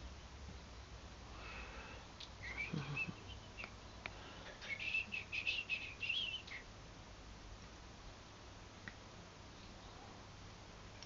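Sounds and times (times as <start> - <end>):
canary chirping: 2.4 - 4.0, 4.6 - 6.7.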